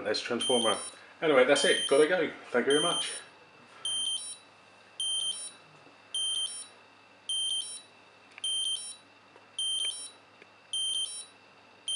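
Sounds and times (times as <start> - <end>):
alarm clock beeping: 0.4 - 1.0, 2.7 - 3.3, 3.9 - 4.4, 5.0 - 5.6, 6.2 - 6.7, 7.3 - 7.8, 8.4 - 9.0, 9.6 - 11.3.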